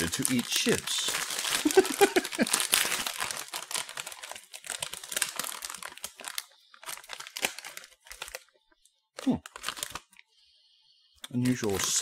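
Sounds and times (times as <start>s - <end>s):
chip bag crinkling: 0.0s - 8.5s, 9.2s - 10.2s.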